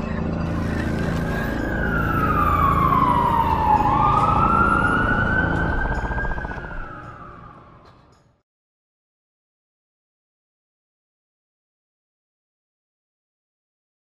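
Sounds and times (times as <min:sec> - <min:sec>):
siren wailing: 0:00.0 - 0:08.2
deep rumble: 0:00.5 - 0:07.5.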